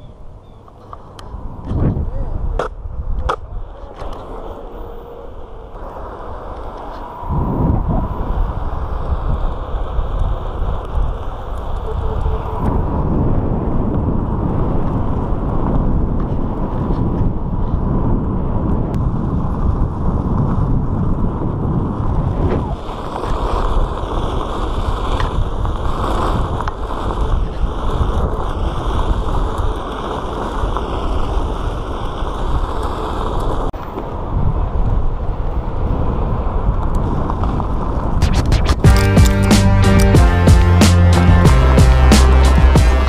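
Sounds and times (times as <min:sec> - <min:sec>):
wind on microphone: 0:00.0 - 0:39.2
tyre rumble on asphalt: 0:12.8 - 0:33.7.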